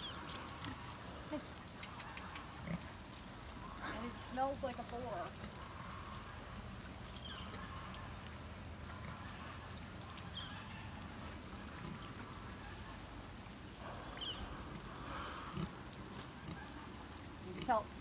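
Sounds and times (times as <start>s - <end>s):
pig grunting and snuffling: 0.0s - 4.3s, 13.8s - 17.9s
light rain pattering: 0.0s - 18.0s.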